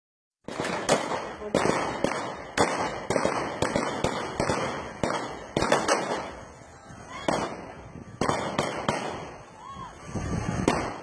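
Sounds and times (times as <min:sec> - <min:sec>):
gunshots echoing: 0:00.5 - 0:06.4, 0:07.3 - 0:09.3.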